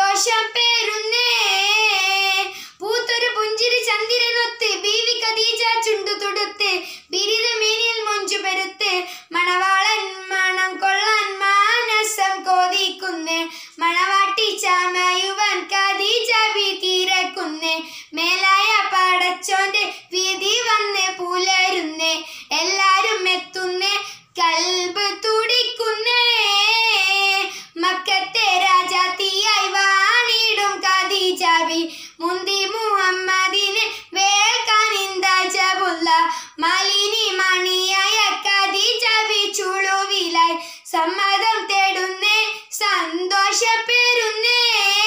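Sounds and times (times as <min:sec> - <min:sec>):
girl singing unaccompanied: 0:00.0 - 0:45.0
short breaths: 0:02.5 - 0:02.8, 0:06.8 - 0:07.1, 0:09.0 - 0:09.3, 0:13.4 - 0:13.8, 0:17.8 - 0:18.2, 0:22.2 - 0:22.5, 0:27.5 - 0:27.8, 0:31.8 - 0:32.2, 0:36.3 - 0:36.6, 0:40.6 - 0:40.9.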